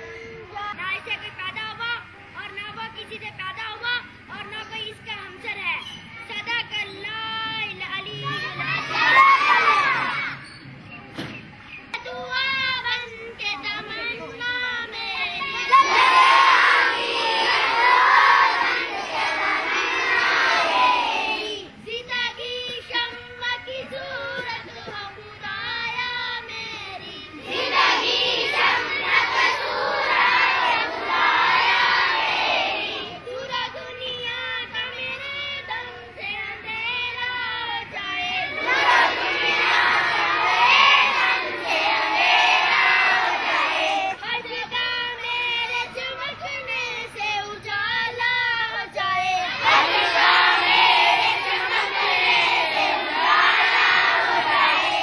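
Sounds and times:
girls singing in unison: 15.4 - 21.8, 22.5 - 55.0
girl singing alone: 21.6 - 27.5, 33.0 - 40.6, 42.6 - 50.6.

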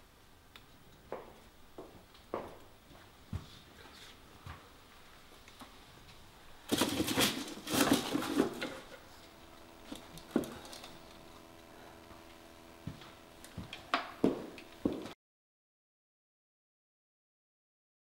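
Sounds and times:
rustling and small knocks: 4.4 - 15.1.

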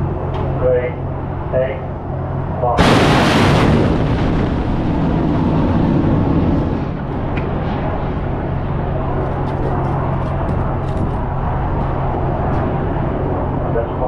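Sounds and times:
steady low hum: 0.0 - 14.0
rocket booster roar: 2.8 - 9.4.

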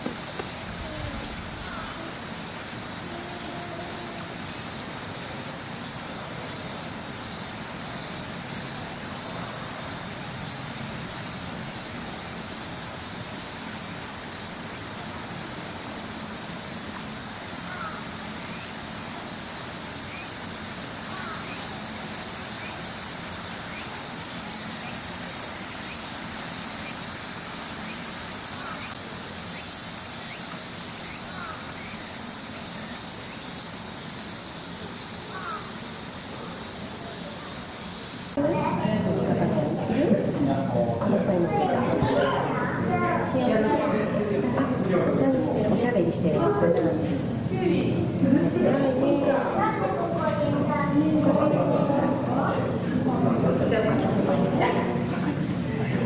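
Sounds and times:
high-pitched insect drone: 0.0 - 38.4.

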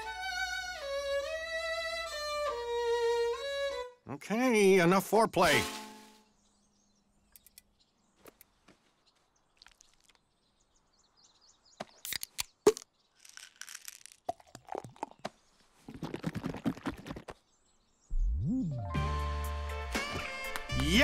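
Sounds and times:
pills rattling out of bottle: 12.1 - 15.2
music with rising note: 18.2 - 21.0.

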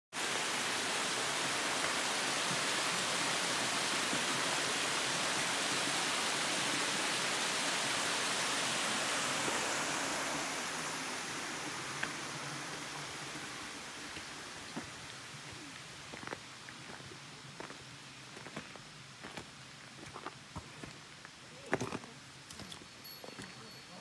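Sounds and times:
water rushing over rock: 0.1 - 16.4.

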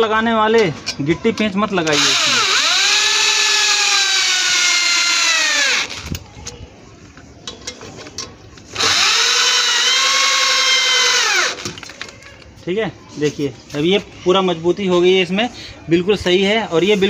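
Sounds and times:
electric drill motor whining: 1.9 - 6.1, 8.8 - 11.6.

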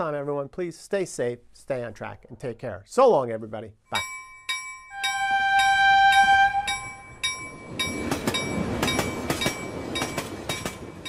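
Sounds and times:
crossing bell ringing: 3.9 - 11.0
train horn: 4.9 - 7.2
passing train rumble: 5.0 - 11.0.

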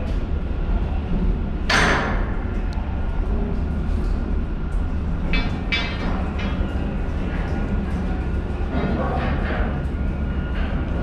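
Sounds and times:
ringing metal clanks: 5.3 - 6.7.

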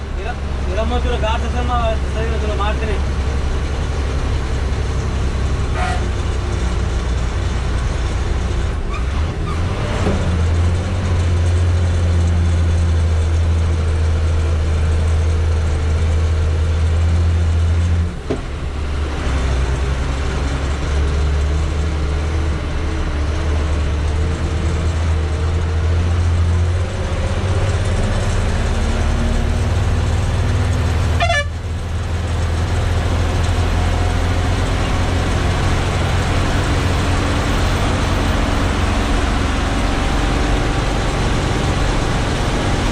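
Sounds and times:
lorry diesel engine droning: 0.0 - 42.9
horn toot: 5.7 - 6.2, 31.2 - 31.6.

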